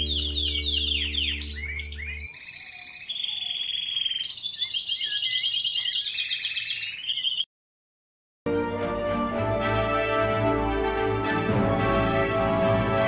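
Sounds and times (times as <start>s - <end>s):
canary trilling: 0.0s - 7.4s.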